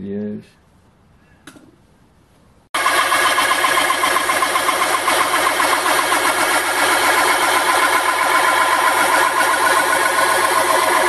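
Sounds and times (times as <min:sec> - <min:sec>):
metal lathe cutting thin steel: 0:02.8 - 0:11.0.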